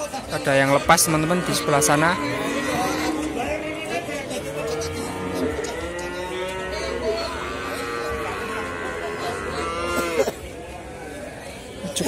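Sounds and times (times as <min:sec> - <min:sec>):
calves mooing: 0:00.7 - 0:10.2.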